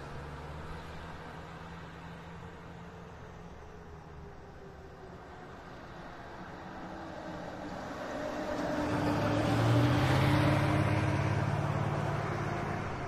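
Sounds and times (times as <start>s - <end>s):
car driving past: 7.2s - 13.0s.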